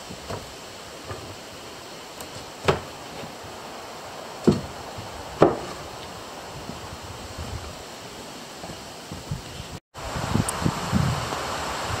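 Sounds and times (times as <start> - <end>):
steady faint hiss: 0.0 - 12.0
sharp knocks: 2.2 - 3.3, 4.4 - 4.7, 5.4 - 5.8.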